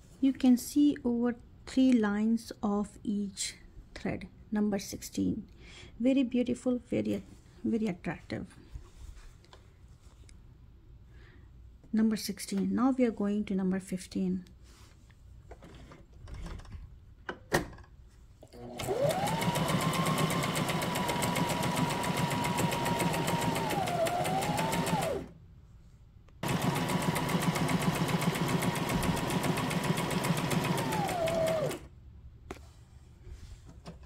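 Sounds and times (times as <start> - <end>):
sewing machine stitching: 18.6 - 25.3, 26.4 - 31.9.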